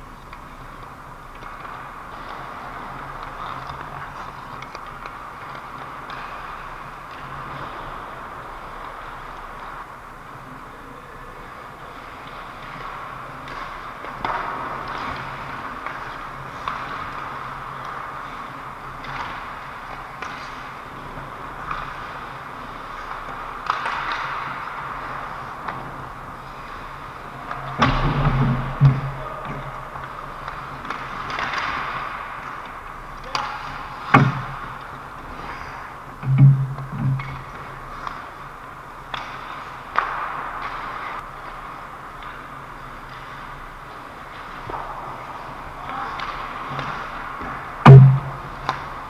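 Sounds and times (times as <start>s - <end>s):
hockey stick clacks: 0.1s - 9.9s, 11.7s - 49.0s
skate blades scraping ice: 11.6s - 36.4s
sharp knocks of stick or puck: 23.3s - 24.9s, 27.5s - 29.8s, 33.2s - 35.5s, 39.1s - 41.0s, 45.8s - 48.9s
sharp knock: 47.8s - 48.4s.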